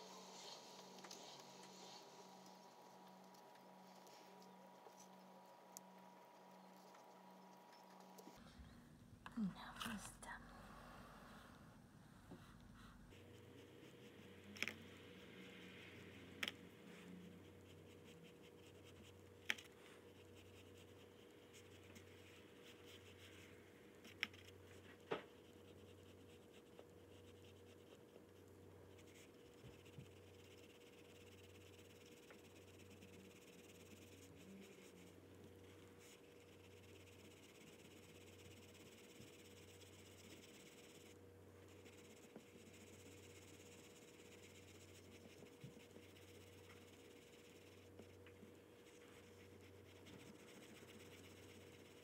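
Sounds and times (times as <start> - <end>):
steady low hum: 0.0 - 52.0
oil pastel scratching paper: 13.1 - 52.0.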